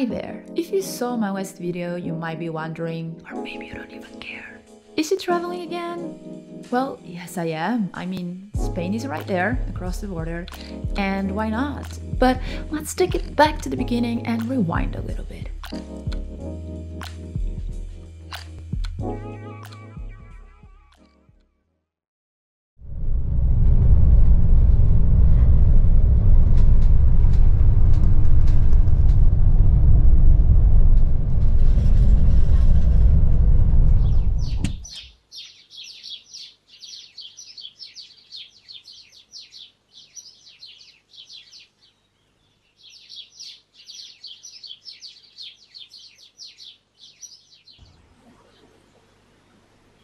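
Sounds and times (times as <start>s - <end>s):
vehicle cabin rumble: 22.9s - 34.9s
rapid high chirping: 34.4s - 42.0s.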